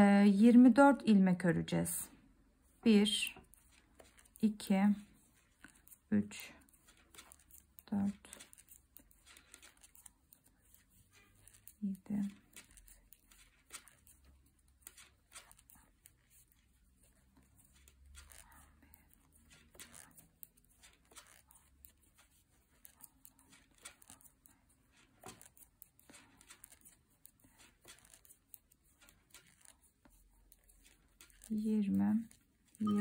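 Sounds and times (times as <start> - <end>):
yarn rustling: 2.6 - 33.0
knitting needles clicking: 5.5 - 16.3, 17.3 - 29.8, 30.4 - 33.0.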